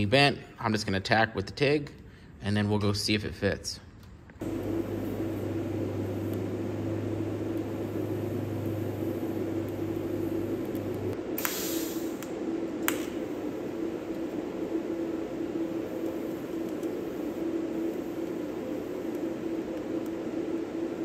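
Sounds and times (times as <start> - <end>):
welding arc buzzing: 4.4 - 20.2
short hiss: 11.4 - 12.2.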